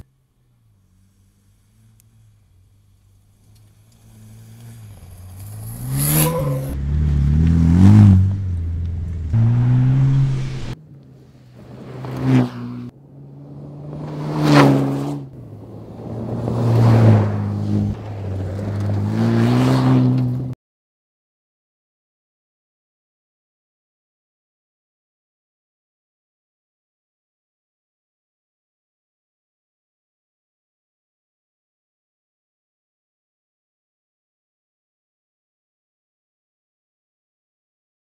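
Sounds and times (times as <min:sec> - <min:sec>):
rally car engine revving: 0:00.0 - 0:20.6
car passing by: 0:00.5 - 0:20.6.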